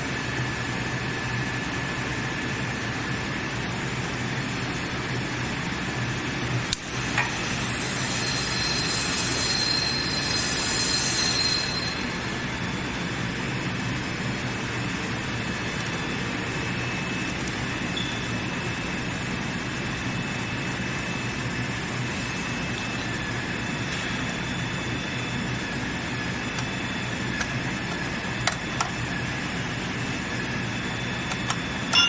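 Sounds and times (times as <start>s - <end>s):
factory machinery noise: 0.0s - 32.0s
high whine: 6.9s - 32.0s.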